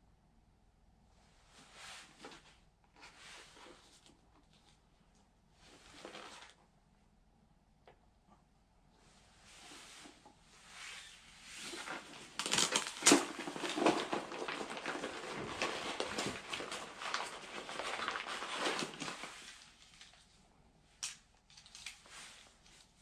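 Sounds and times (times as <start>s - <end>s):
fabric rustling: 9.4s - 20.1s.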